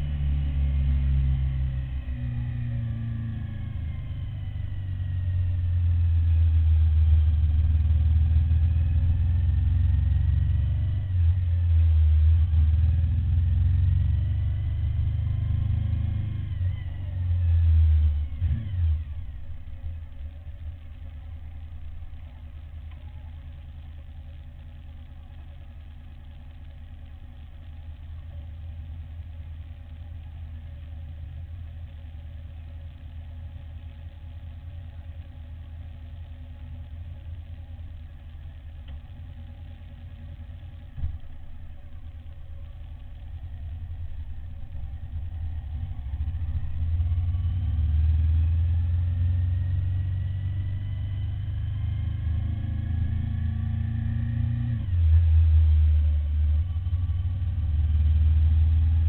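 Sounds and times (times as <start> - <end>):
motorcycle engine revving: 0.0 - 23.9, 38.2 - 59.0
motorcycle engine idling: 19.0 - 53.0.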